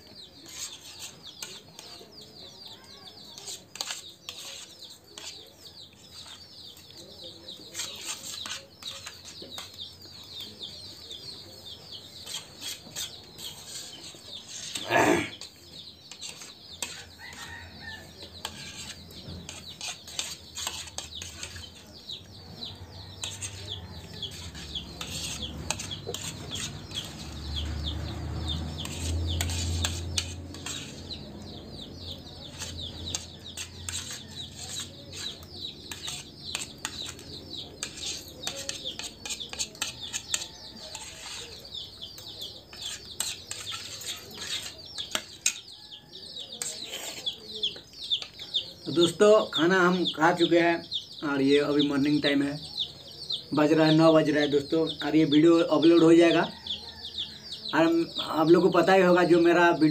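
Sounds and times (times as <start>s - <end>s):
birds chirping: 0.0s - 59.9s
chickens clucking: 6.2s - 59.9s
spoons clinking on plates: 32.5s - 41.7s, 42.7s - 45.7s.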